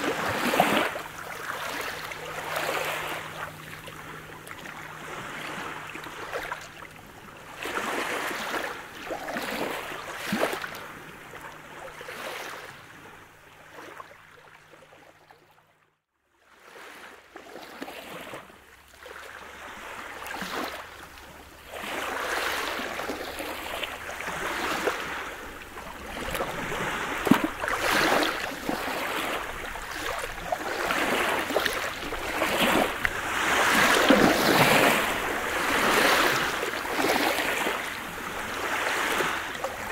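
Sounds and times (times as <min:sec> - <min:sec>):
waves washing up pebble beach: 0:00.0 - 0:03.8, 0:21.7 - 0:39.9.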